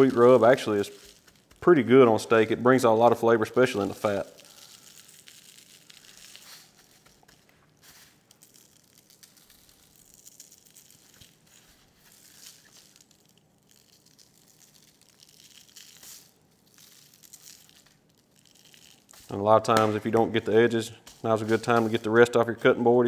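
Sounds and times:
dry rub shaken from shaker: 0.0 - 2.0, 3.7 - 9.1, 18.5 - 22.3
butcher paper rustling and crinkling: 0.0 - 22.6.

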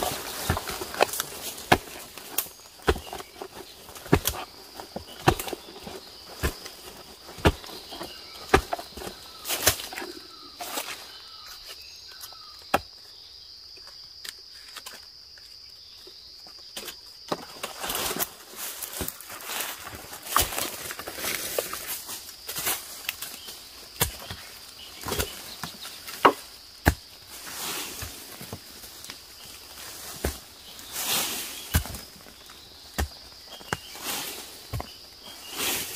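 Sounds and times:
digging tool striking soil: 0.0 - 10.1, 24.0 - 28.6, 31.5 - 35.0
leaves rustling: 0.0 - 11.8, 17.5 - 35.9
high insect drone: 0.0 - 35.9.

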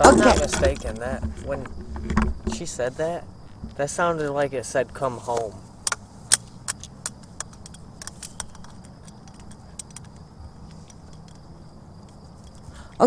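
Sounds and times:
radio clicks and crackles: 0.0 - 2.7, 5.4 - 12.7.

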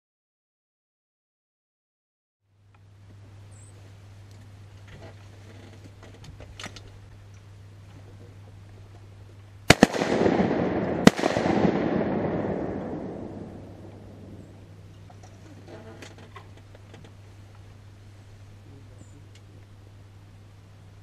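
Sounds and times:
shotgun shots: 9.7 - 14.7
rush of noise after shots: 9.7 - 14.8.

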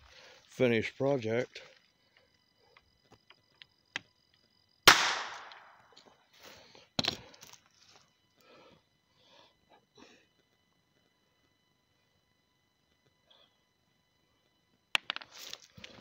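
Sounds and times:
gunshot bang: 4.9 - 5.6.

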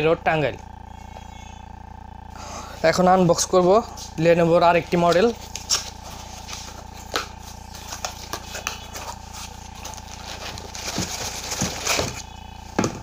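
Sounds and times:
cardboard rustling and scraping: 2.8 - 13.0.

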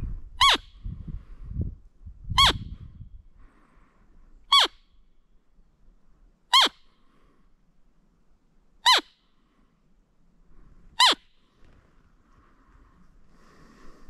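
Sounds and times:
deer squeaky call: 0.4 - 0.8, 2.4 - 2.8, 4.5 - 4.9, 6.5 - 6.9, 8.8 - 9.2, 11.0 - 11.3.

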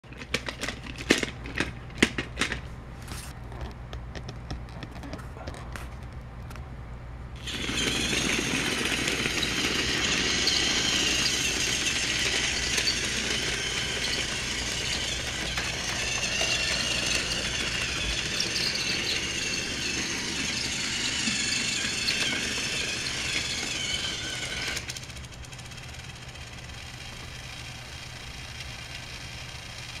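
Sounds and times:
toy train motor whirring: 7.4 - 30.0.

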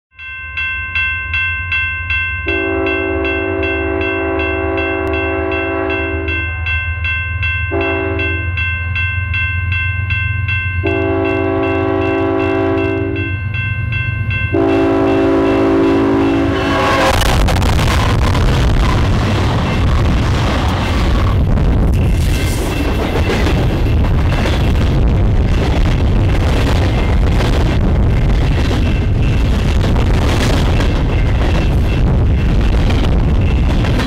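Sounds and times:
bell ringing: 0.1 - 25.0
train passing: 0.4 - 34.0
locomotive air horn blasts: 2.5 - 6.5, 7.7 - 8.4, 10.8 - 13.3, 14.5 - 19.0
locomotive low rumble: 9.9 - 34.0.

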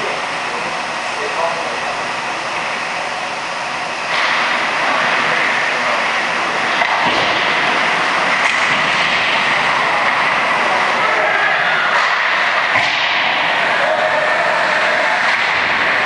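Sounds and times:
ice hockey game din: 4.0 - 16.0.

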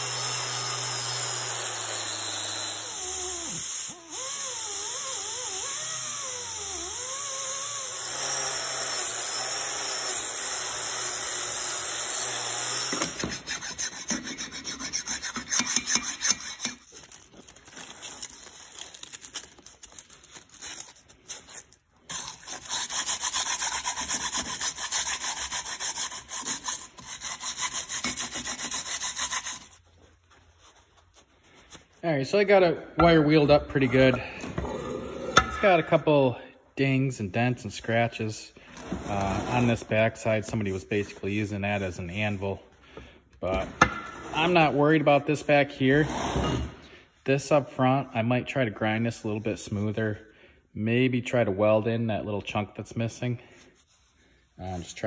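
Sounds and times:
uneven scraping: 26.0 - 44.8.

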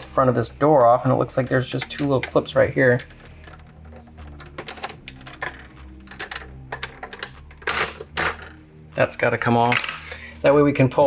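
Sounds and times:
plastic clicks and rattles: 0.8 - 8.6.

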